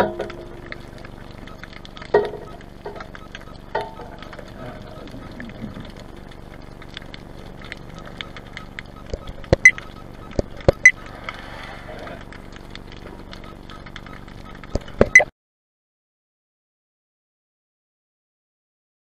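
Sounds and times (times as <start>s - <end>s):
sharp clicks and knocks: 0.0s - 4.5s, 6.9s - 11.4s, 12.5s - 15.3s
low underwater hum: 0.0s - 15.3s.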